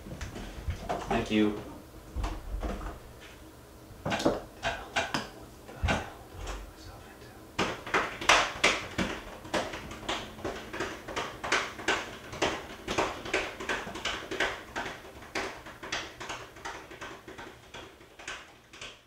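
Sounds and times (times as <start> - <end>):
hand drumming on hard surface: 7.6 - 19.0.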